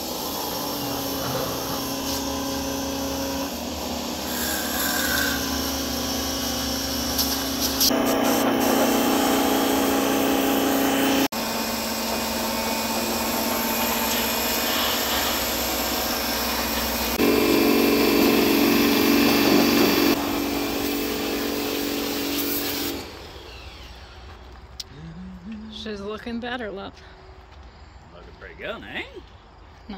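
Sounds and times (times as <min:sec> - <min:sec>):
pressure washer motor hum: 0:00.0 - 0:24.6
water jet spraying on metal: 0:13.8 - 0:23.0.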